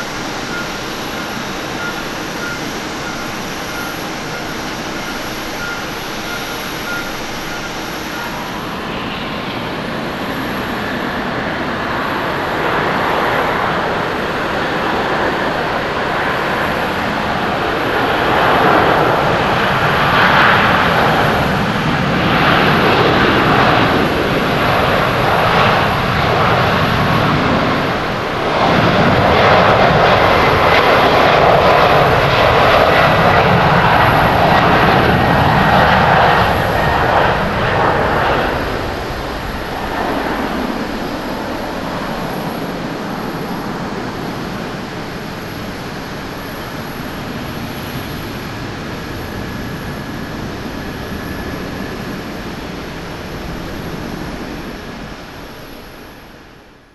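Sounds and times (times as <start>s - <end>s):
jet engines rushing at takeoff: 0.0s - 56.9s.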